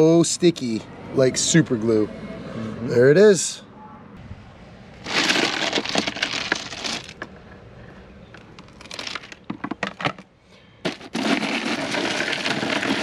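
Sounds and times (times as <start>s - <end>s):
crushed ice crunching: 5.0s - 7.2s, 8.6s - 10.2s, 10.8s - 13.0s
ice sliding: 5.0s - 7.2s, 10.8s - 13.0s.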